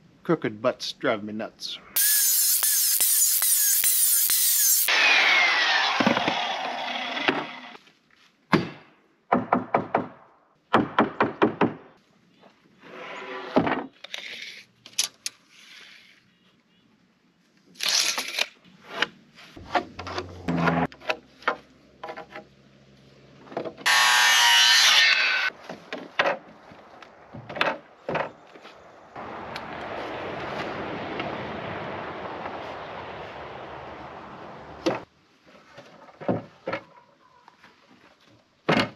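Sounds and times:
circular saw whine: 2.0s - 7.8s, 23.9s - 25.5s
wooden knocks and clatters: 35.9s - 36.9s.

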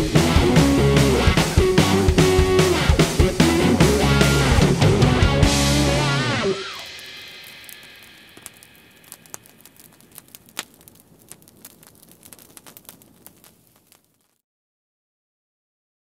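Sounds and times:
wood fire crackling: 5.4s - 14.4s.

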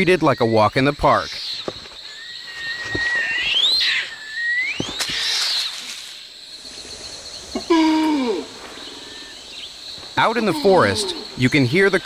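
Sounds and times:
fast ticking of insects: 0.0s - 7.8s, 8.4s - 12.0s
long whistled animal calls: 7.5s - 11.8s.

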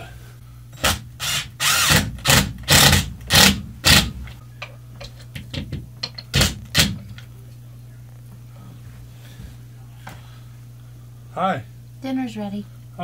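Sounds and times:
cordless drill driving screw into wood: 0.8s - 4.1s.

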